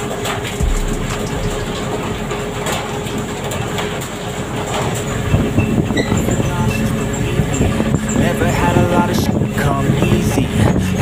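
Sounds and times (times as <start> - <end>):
boat engine running: 0.6 - 3.4.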